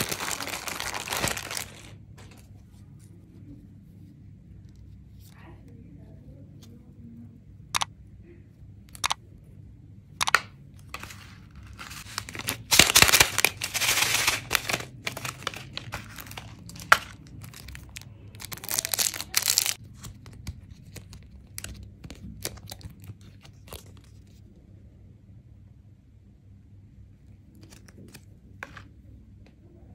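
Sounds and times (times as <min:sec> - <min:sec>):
plastic wrapper crinkling and tearing: 0:00.0 - 0:02.0, 0:10.9 - 0:24.3.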